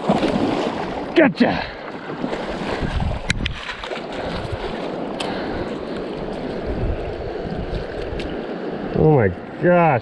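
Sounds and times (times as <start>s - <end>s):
creek running over stones: 0.0s - 10.0s
wind rumbling on microphone: 2.3s - 9.0s.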